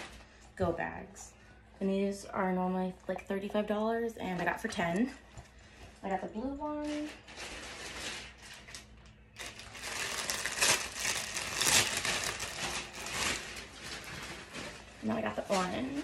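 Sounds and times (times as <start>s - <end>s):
plastic packaging crinkling: 6.6s - 16.0s.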